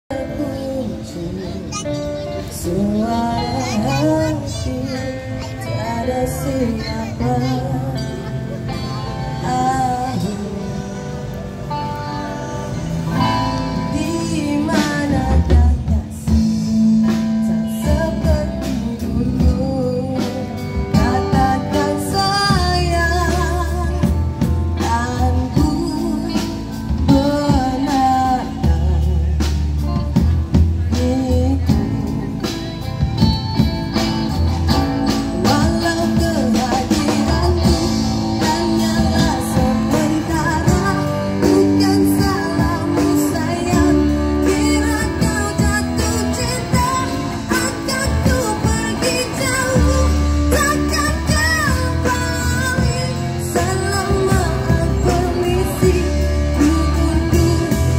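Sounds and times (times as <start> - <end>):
woman singing: 0.1 - 11.4, 13.1 - 32.6, 33.6 - 57.9
live band music: 0.1 - 57.9.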